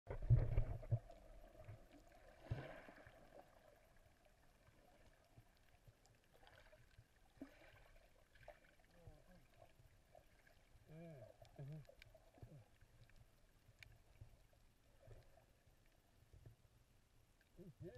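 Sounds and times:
low underwater thump: 0.1s - 1.1s
muffled underwater water sound: 0.1s - 17.9s.

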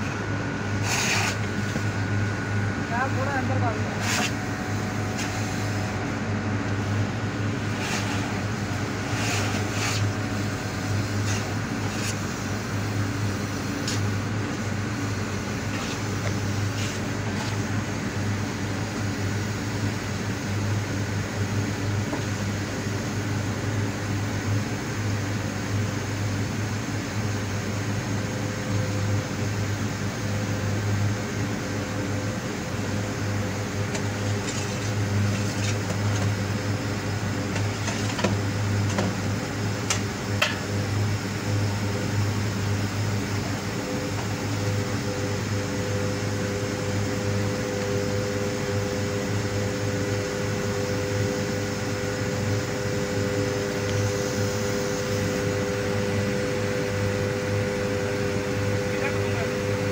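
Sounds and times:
suction pump droning: 0.0s - 23.0s.

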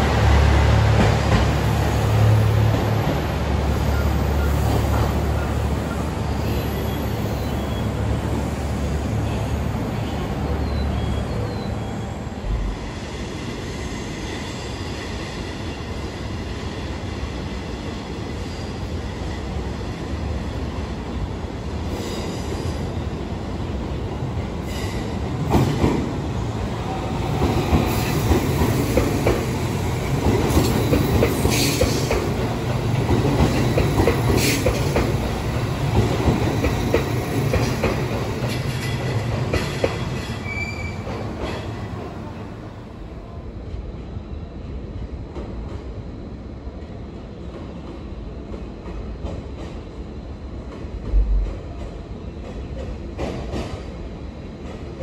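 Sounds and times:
train low hum: 0.0s - 55.0s
train wheels squealing: 3.7s - 8.2s, 9.3s - 16.1s, 38.5s - 41.8s.

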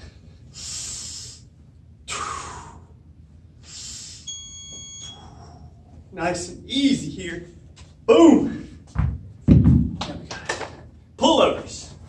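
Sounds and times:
man breathing out forcefully: 2.1s - 3.0s, 3.6s - 4.2s.

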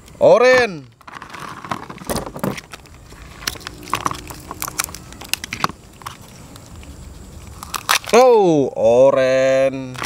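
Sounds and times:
crab shells cracking: 7.6s - 8.2s.

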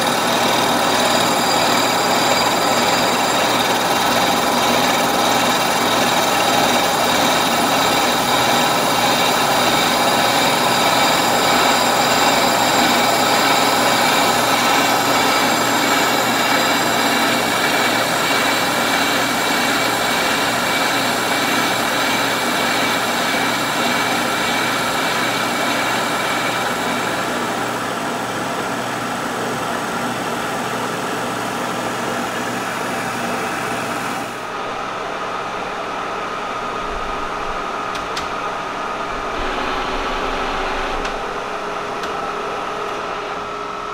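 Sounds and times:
milling machine cutting metal: 0.0s - 28.0s, 37.8s - 43.5s
machine running with steady tones: 0.0s - 29.3s, 32.2s - 43.9s.

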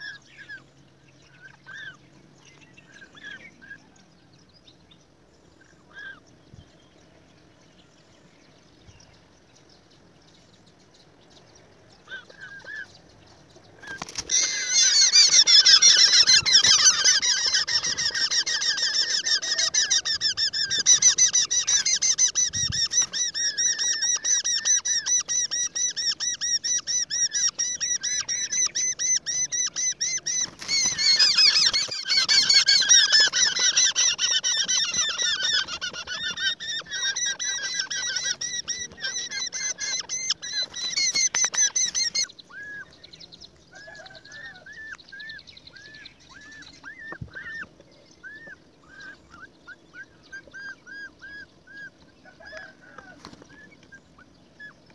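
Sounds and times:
nestlings begging calls: 1.2s - 2.0s, 12.0s - 13.0s, 13.8s - 54.8s.

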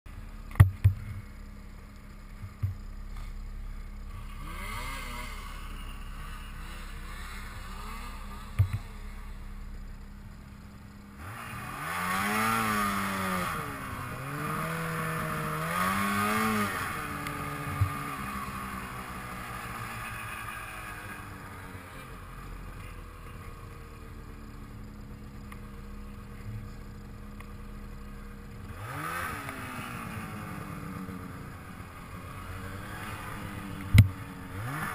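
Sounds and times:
snowmobile engine revving: 2.3s - 34.9s.

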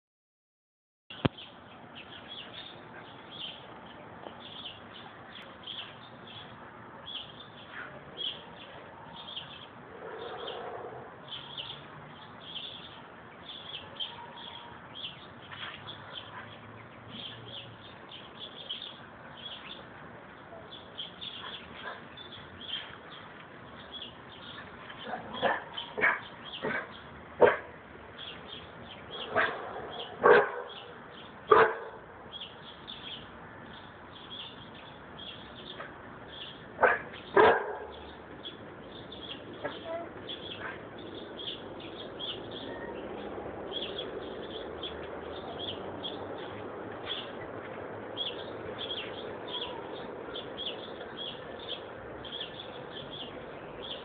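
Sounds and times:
small birds chirping: 1.1s - 54.0s
dog barking: 25.1s - 27.7s, 29.2s - 30.9s, 31.5s - 32.0s, 36.8s - 38.0s.

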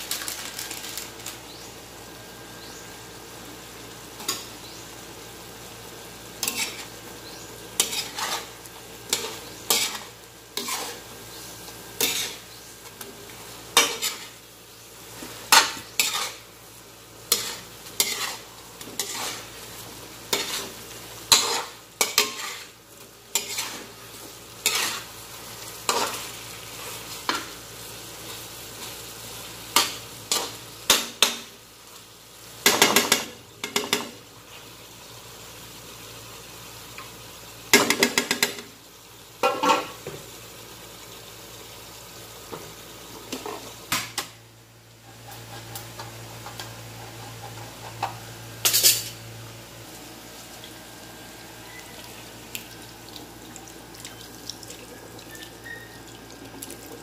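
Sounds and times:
sauce sizzling: 0.0s - 57.0s
metal spatula scraping a wok: 6.4s - 7.0s, 7.8s - 11.1s, 12.0s - 12.5s, 13.8s - 14.4s, 15.5s - 16.5s, 17.3s - 19.6s, 20.3s - 23.9s, 24.6s - 25.1s.

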